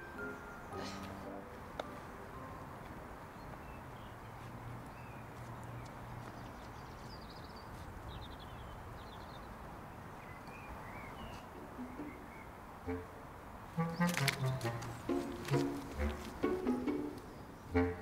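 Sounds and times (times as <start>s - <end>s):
small birds chirping: 3.2s - 13.0s
steady background hiss: 7.9s - 18.0s.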